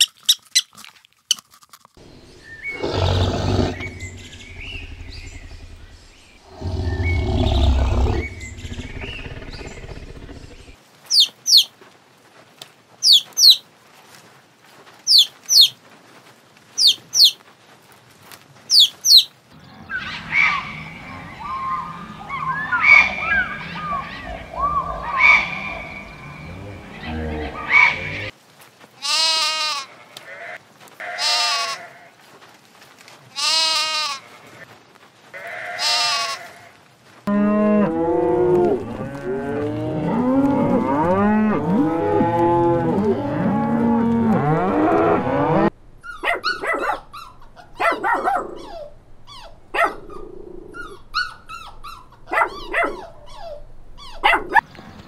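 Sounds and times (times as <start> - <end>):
livestock calling: 2.0 - 11.7, 18.7 - 28.3, 29.0 - 32.1, 35.4 - 36.7
short chirping calls: 2.0 - 11.7, 13.0 - 13.6, 16.8 - 17.4, 18.7 - 19.3
young goat bleating: 29.0 - 32.1, 33.3 - 34.6, 35.4 - 36.8
dog yipping and whining: 46.0 - 54.6.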